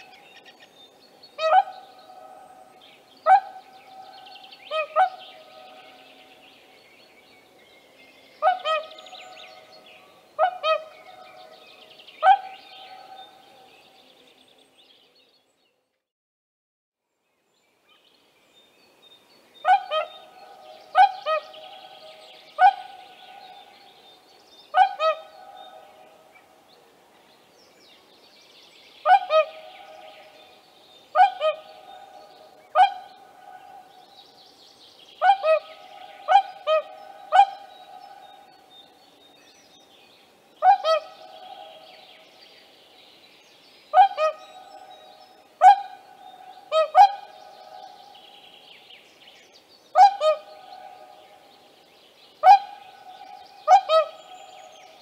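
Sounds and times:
swan trumpeting calls: 8.4 - 9.0, 10.4 - 11.0, 19.7 - 20.3, 24.7 - 25.5, 29.1 - 29.8, 31.2 - 32.1, 35.2 - 37.7, 40.6 - 41.2, 44.0 - 44.6, 45.6 - 47.8, 50.0 - 51.0, 52.4 - 54.4.

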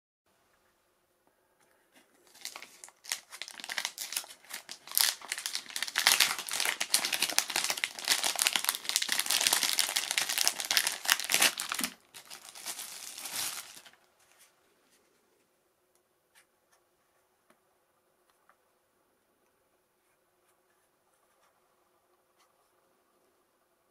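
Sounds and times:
plastic bags rustling: 2.2 - 14.5.

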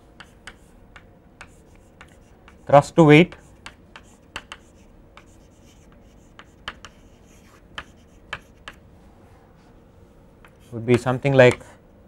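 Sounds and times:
chalk scratching on chalkboard: 0.2 - 0.8, 1.4 - 8.8.

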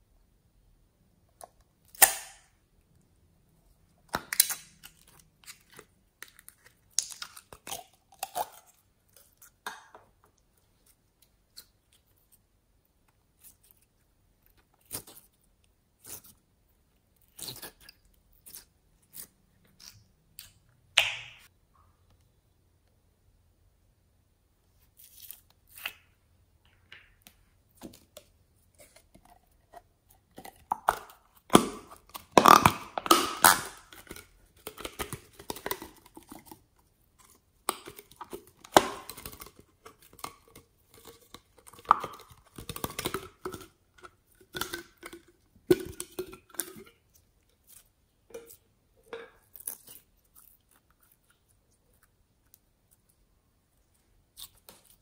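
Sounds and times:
slime squelching and popping: 4.0 - 12.4, 17.0 - 21.6, 25.0 - 53.2.

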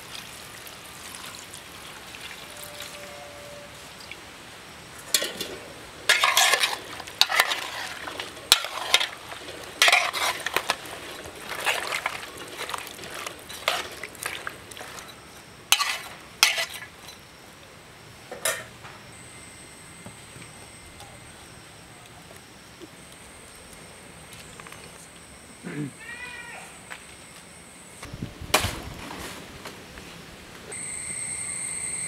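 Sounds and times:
clatters in metal pot: 5.1 - 15.1
vegetables sloshing in water: 6.1 - 15.1.

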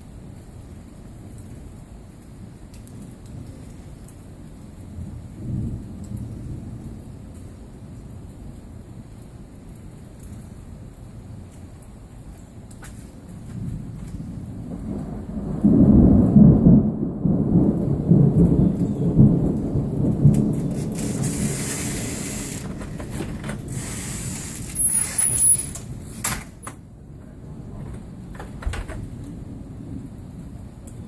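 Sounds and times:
rain: 0.0 - 31.0
thunder rumbling: 4.9 - 8.0, 13.2 - 31.0
brief hissing: 21.2 - 22.7.

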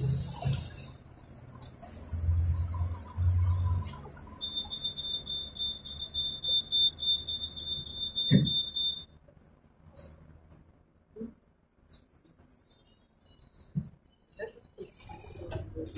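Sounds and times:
fast-pulsing high door beeper: 3.0 - 9.1
thump: 8.3 - 8.6.

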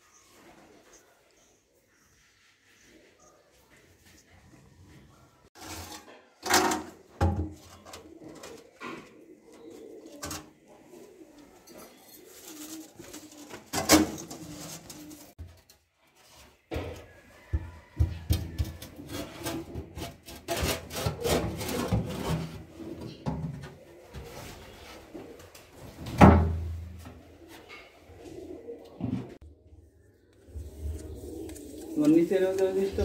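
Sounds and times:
metal sink knocks and scraping: 5.6 - 8.0, 17.6 - 23.8
pigeon cooing: 7.6 - 15.3, 21.0 - 26.0, 27.0 - 33.0.

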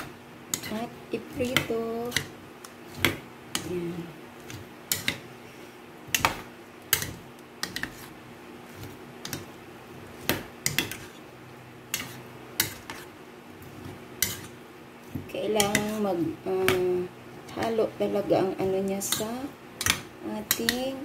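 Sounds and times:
fork scraping against bowl: 0.5 - 0.9, 7.0 - 8.1, 11.9 - 13.1, 14.2 - 14.6.

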